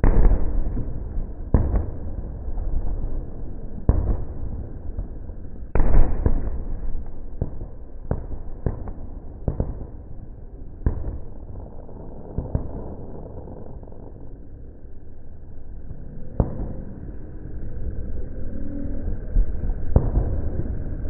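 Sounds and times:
fireworks exploding: 0.0s - 3.2s, 3.8s - 5.1s, 5.7s - 14.4s, 19.9s - 20.8s
constant rumble: 0.0s - 21.0s.

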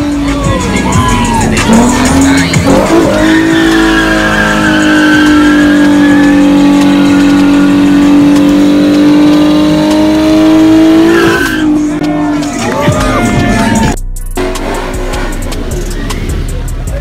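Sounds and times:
car engine at high revs: 0.0s - 17.0s
tyres squealing: 0.2s - 9.3s, 10.5s - 14.0s.

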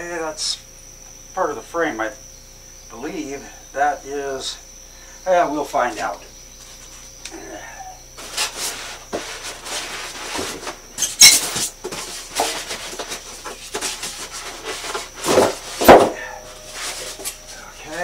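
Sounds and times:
cardboard and packing rustling: 8.2s - 18.0s
sharp knocks: 15.3s - 16.4s.

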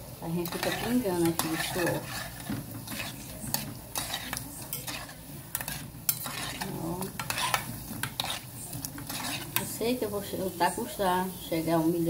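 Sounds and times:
oil sizzling: 0.0s - 12.0s
metal spoon clinking against pot: 0.4s - 8.4s.

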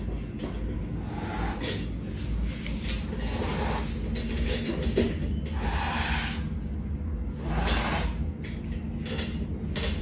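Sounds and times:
low steady hum: 0.0s - 10.0s
cat hissing: 1.0s - 1.6s, 5.6s - 6.5s, 7.4s - 8.2s.

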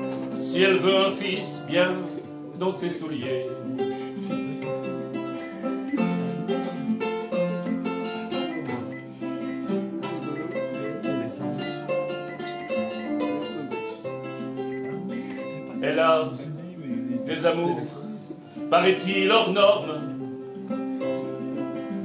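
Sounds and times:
acoustic guitar strumming: 0.0s - 22.0s.

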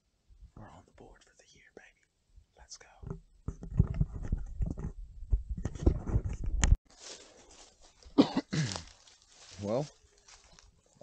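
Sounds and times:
camera rubbing against clothing: 3.1s - 6.8s
footsteps through grass: 6.9s - 11.0s.

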